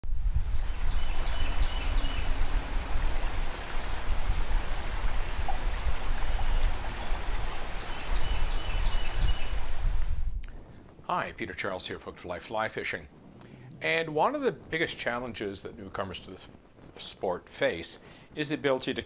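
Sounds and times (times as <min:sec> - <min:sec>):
bird chirping: 0:00.5 - 0:02.6, 0:06.3 - 0:09.6
river water rushing: 0:00.5 - 0:10.0.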